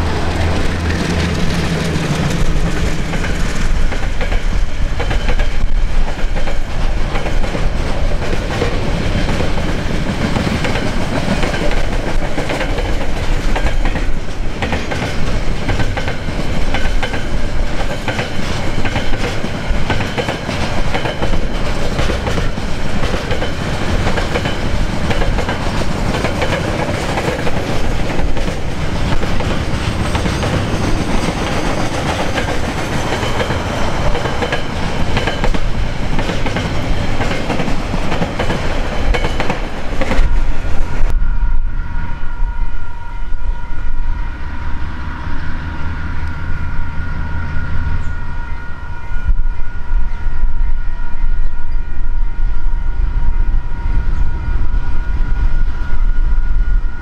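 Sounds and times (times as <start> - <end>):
train wheels rumbling on rail: 0.0 - 57.0
wheels clicking over rail joints: 0.1 - 41.1.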